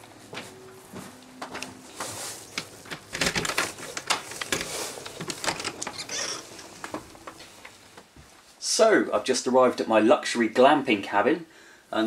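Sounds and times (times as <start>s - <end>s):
rustling: 0.2s - 8.6s
door opening: 2.5s - 8.1s
knocks and clicks: 2.5s - 8.1s.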